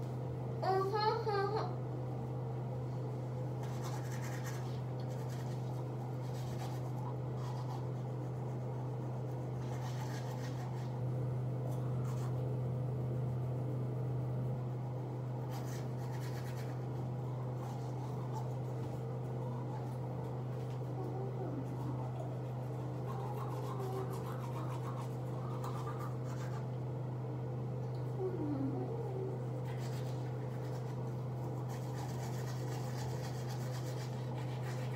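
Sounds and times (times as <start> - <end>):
low hum: 0.0 - 34.9
toothbrush scrubbing teeth: 3.5 - 11.1, 11.7 - 12.5, 14.6 - 26.8, 28.8 - 34.9.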